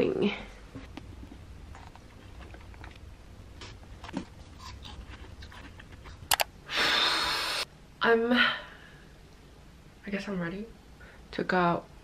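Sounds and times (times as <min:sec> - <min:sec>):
sharp clicks: 0:06.3 - 0:06.5
breathy blow through cheeks: 0:06.7 - 0:07.6.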